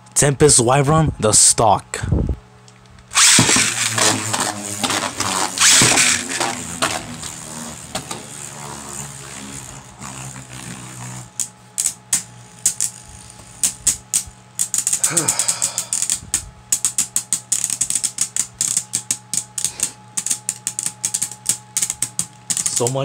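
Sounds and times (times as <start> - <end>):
spinning top launch: 3.1 - 23.0
spinning tops whirring: 3.1 - 23.0.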